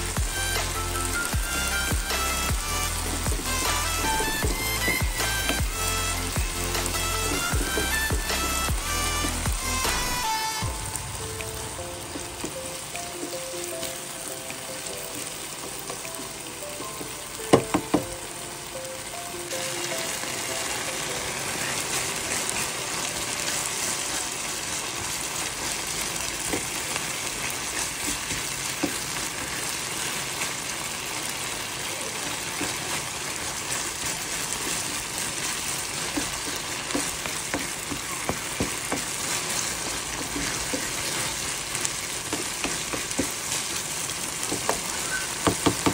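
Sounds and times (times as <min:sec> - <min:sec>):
soft background music: 0:00.0 - 0:24.8
curry sizzling in a frying pan: 0:00.0 - 0:45.9
spatula scraping a pan: 0:02.1 - 0:10.2, 0:32.4 - 0:43.8.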